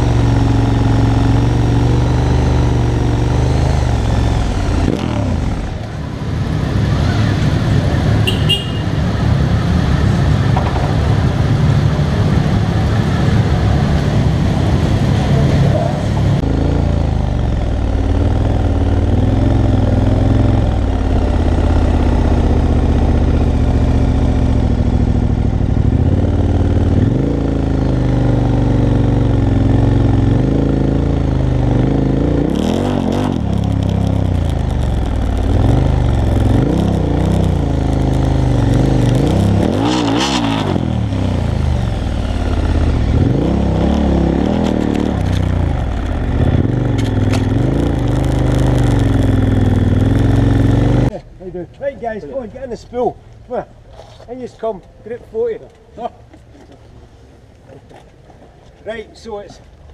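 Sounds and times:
motorcycle engine running: 0.0s - 9.1s, 16.4s - 39.6s, 40.6s - 51.7s
other motorcycle engines: 0.0s - 59.9s.

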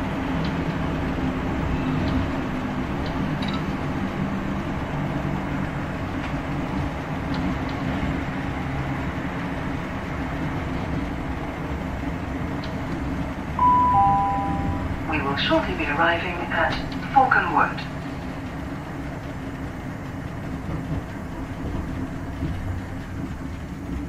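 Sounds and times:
low traction motor hum: 0.0s - 24.0s
train wheels rolling on rails: 0.0s - 24.0s
two-note falling electronic chime: 13.6s - 15.0s.

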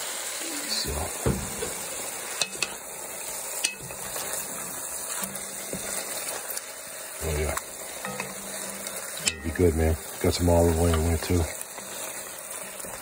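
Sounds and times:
meat sizzling in oil: 0.0s - 13.0s
wooden spoon knocking pot: 1.2s - 2.8s, 8.0s - 9.6s.

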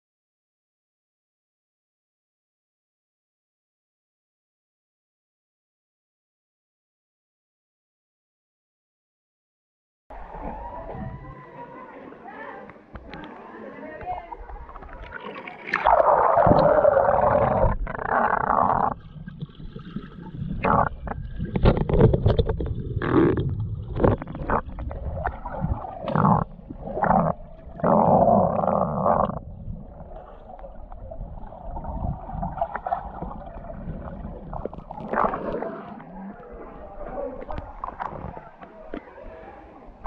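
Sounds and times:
underwater rushing and gurgling: 14.3s - 40.0s
sharp knocks and splashes: 19.3s - 26.2s.

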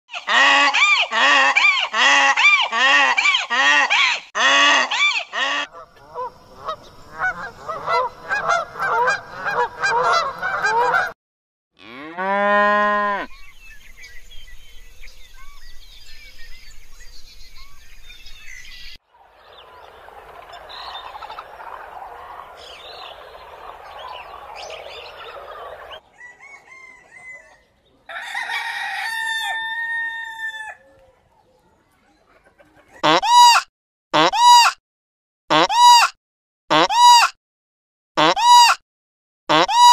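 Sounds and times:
drawn-out animal call: 0.1s - 11.1s, 19.5s - 27.4s
chicken calling loudly: 0.1s - 11.2s, 19.6s - 31.1s, 32.7s - 34.8s, 35.5s - 36.1s, 36.7s - 37.3s, 38.2s - 38.8s, 39.5s - 39.9s
drawn-out fowl call: 0.1s - 11.2s, 19.1s - 31.0s, 32.9s - 34.8s, 35.5s - 36.1s, 36.7s - 37.3s, 38.2s - 38.8s, 39.5s - 39.9s
goose honking: 0.1s - 11.2s, 19.6s - 26.0s, 33.0s - 33.6s, 34.2s - 34.8s, 35.5s - 36.1s, 36.7s - 37.3s, 39.5s - 39.9s.

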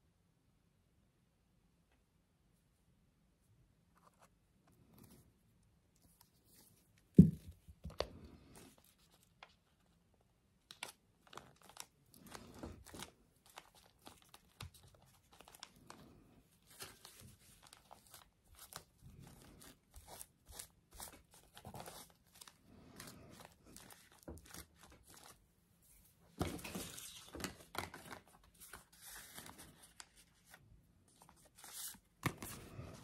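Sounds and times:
paper rustling and crinkling: 10.6s - 25.4s, 26.0s - 33.0s.

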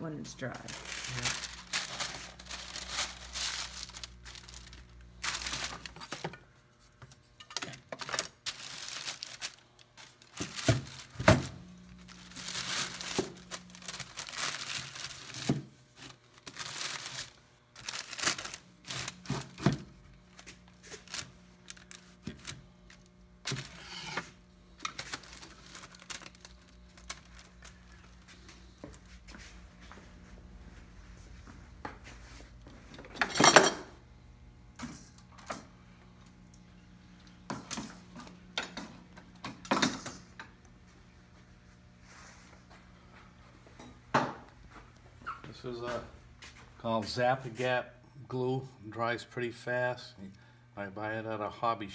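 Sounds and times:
plastic sheeting crinkling: 0.4s - 6.2s, 7.6s - 19.6s, 20.2s - 24.0s, 24.8s - 29.6s.

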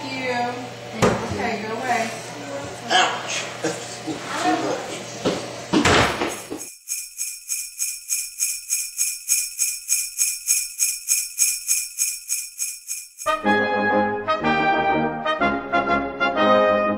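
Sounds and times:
sleigh bells jingling: 6.4s - 13.5s
brass music: 13.3s - 16.9s.

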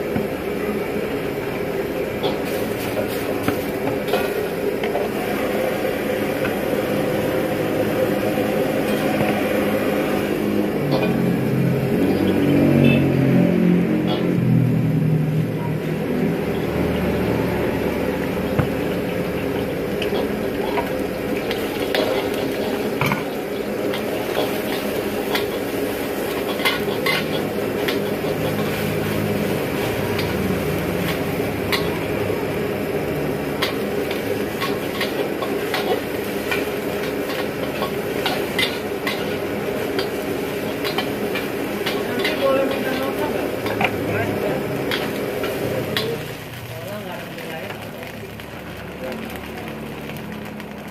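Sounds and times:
gas burner noise: 0.0s - 50.9s
egg sizzling in hot oil: 1.1s - 50.9s
metal ladle scraping a wok: 20.0s - 32.0s.

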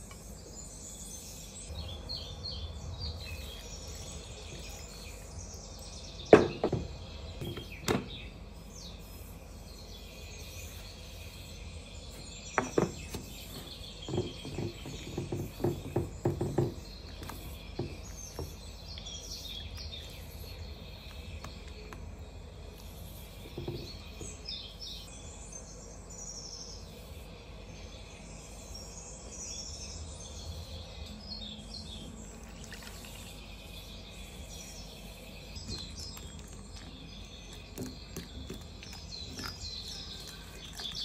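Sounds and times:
faint bird chirping: 0.0s - 41.0s
kitchenware knocking on wooden table: 6.3s - 8.1s, 12.6s - 13.2s, 14.0s - 16.8s, 23.5s - 24.0s.

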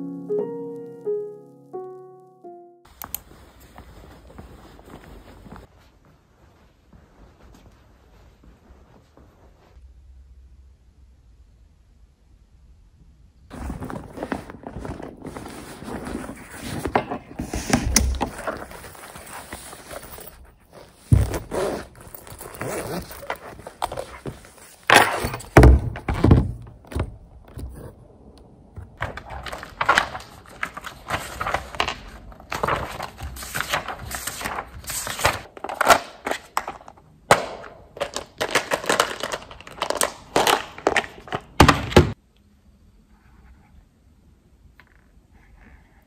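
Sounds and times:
rustling and paper shuffling: 2.9s - 9.8s, 13.5s - 26.5s, 28.8s - 37.0s, 37.9s - 41.6s.

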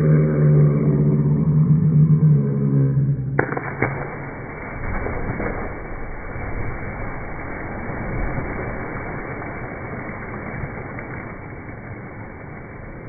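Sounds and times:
water splashing in a pool: 3.4s - 13.0s.

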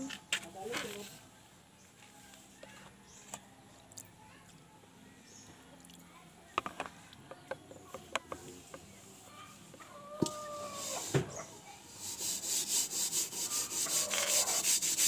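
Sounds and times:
pot scrubbed with sand: 10.5s - 11.1s, 11.9s - 15.0s.

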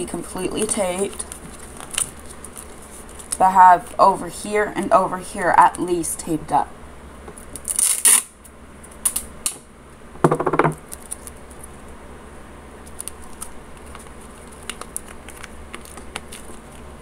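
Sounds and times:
packing tape clicks and crinkles: 0.6s - 3.4s, 7.3s - 9.6s, 10.8s - 11.8s, 12.8s - 17.0s.

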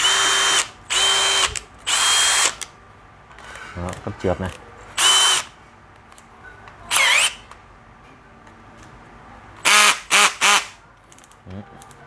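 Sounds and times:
cordless drill motor whine: 0.0s - 2.6s, 5.0s - 5.5s, 6.9s - 7.3s.

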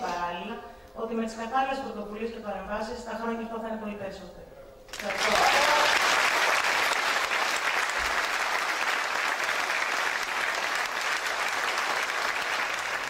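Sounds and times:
large audience applauding: 4.9s - 13.0s.

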